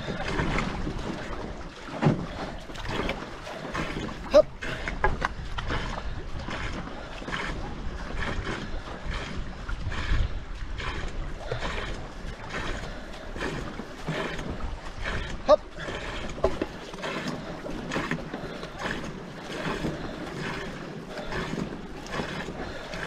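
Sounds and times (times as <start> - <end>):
paddle strokes through water: 0.0 - 23.0
water wash: 0.0 - 23.0.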